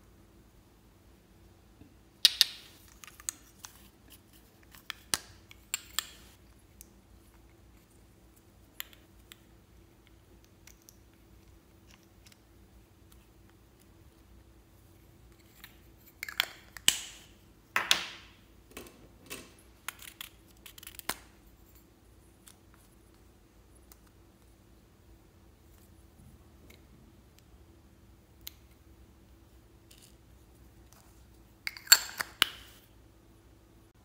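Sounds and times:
plastic tubes clicking and tapping: 8.7s - 12.4s.

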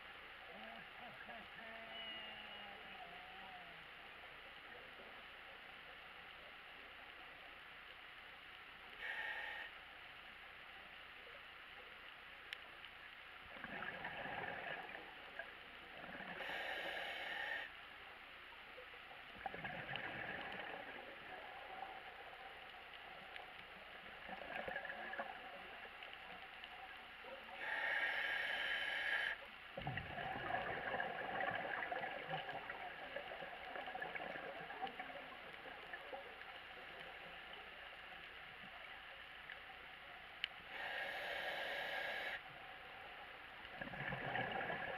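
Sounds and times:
underwater hush: 0.4s - 4.2s, 27.5s - 37.9s, 40.7s - 42.6s
hissing regulator inhalations: 9.0s - 9.7s, 16.4s - 17.7s, 27.6s - 29.4s, 40.7s - 42.4s
gurgling exhaled bubbles: 13.5s - 15.2s, 19.4s - 21.6s, 29.8s - 36.1s, 43.7s - 44.9s.

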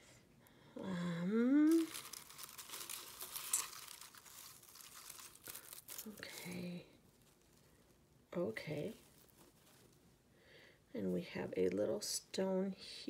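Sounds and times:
woman humming: 0.8s - 2.1s
paper shred filler crinkling: 1.6s - 10.0s.

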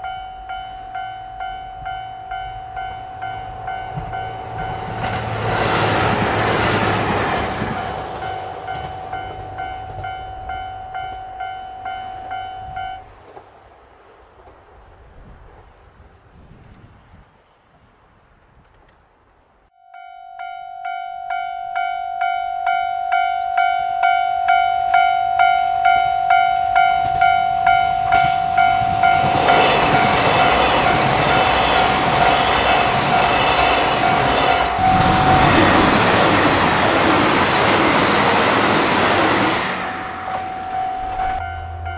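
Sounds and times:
train passing: 0.0s - 16.0s, 22.2s - 41.9s
level crossing alarm bell dinging: 19.8s - 33.4s, 34.0s - 41.9s.

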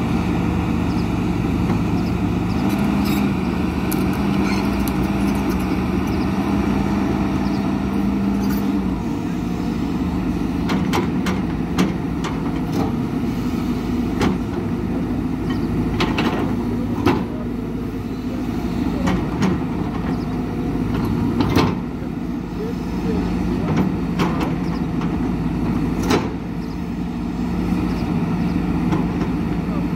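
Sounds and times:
excavator diesel engine running: 0.0s - 29.9s.

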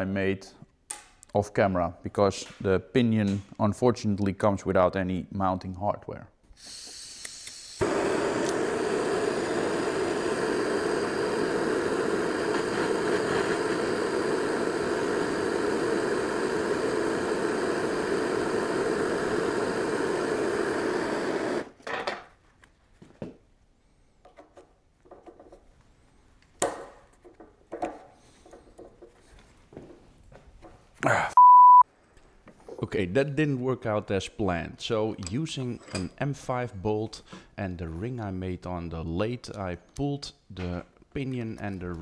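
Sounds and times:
gas torch flame burning: 6.6s - 21.8s.

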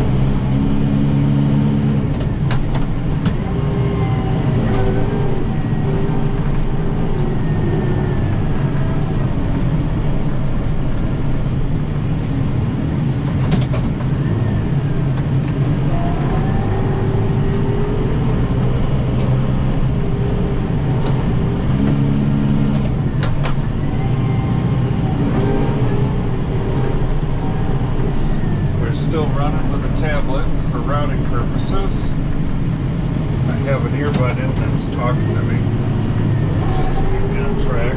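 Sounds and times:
tractor diesel engine running: 0.0s - 37.9s
sharp clicks or knocks: 13.1s - 14.2s.

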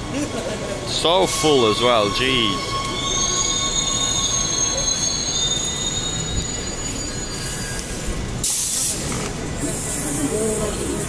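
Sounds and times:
train low rumble: 0.0s - 11.0s
train brake squeal: 1.0s - 11.0s
air hiss: 8.4s - 10.6s.

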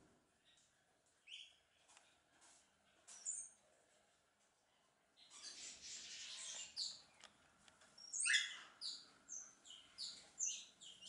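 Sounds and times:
small birds chirping: 0.4s - 2.2s, 2.9s - 3.6s, 5.1s - 11.0s.

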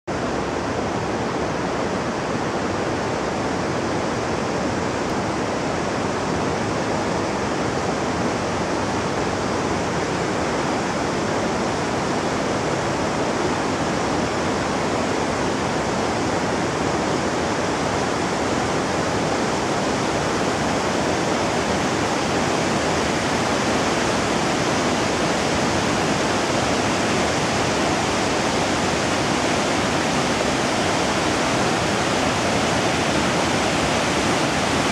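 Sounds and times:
running water rushing: 0.1s - 34.9s.

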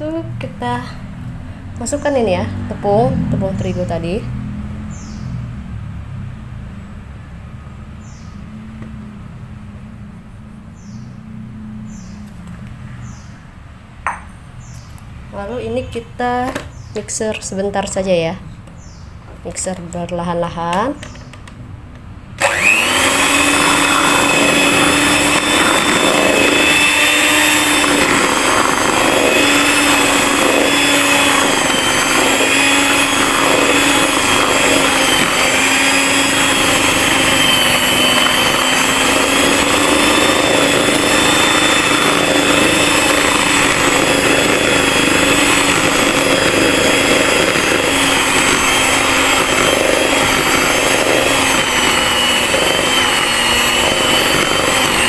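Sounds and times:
electric hand mixer whining: 22.4s - 55.0s.

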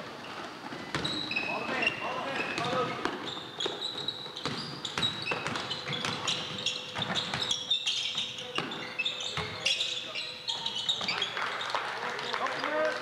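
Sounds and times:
sneakers squeaking: 0.0s - 12.9s
basketball bouncing on court: 0.9s - 1.3s, 2.5s - 9.7s.

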